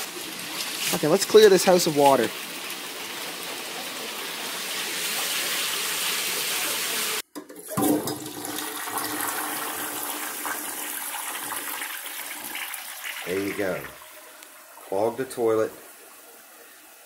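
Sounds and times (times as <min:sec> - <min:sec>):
toilet flushing: 0:00.0 - 0:17.0
water rushing: 0:08.4 - 0:16.8.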